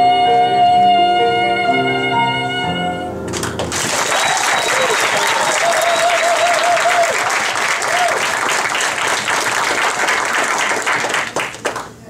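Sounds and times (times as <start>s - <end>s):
audience applauding: 3.3s - 12.0s
voices cheering: 4.0s - 8.5s.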